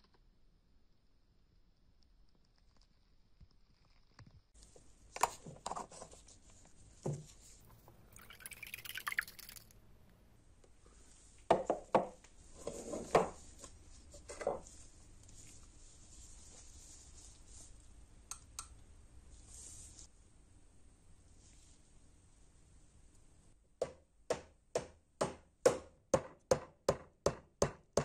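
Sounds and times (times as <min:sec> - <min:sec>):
liquid dripping: 0:07.8 - 0:09.8.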